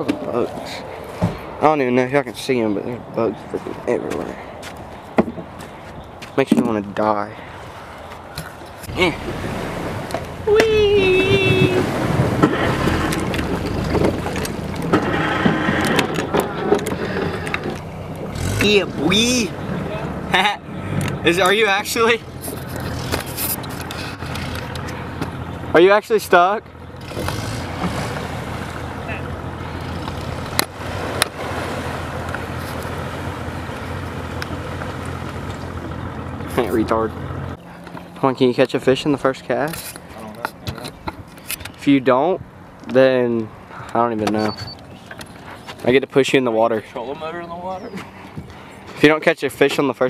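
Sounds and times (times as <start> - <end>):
wind rumbling on microphone: 8.2 - 21.3
engine running: 8.9 - 39.4.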